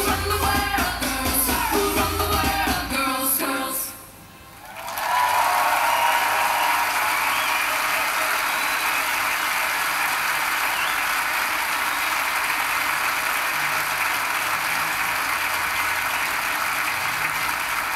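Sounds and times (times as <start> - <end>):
audience applauding: 4.6 - 17.9.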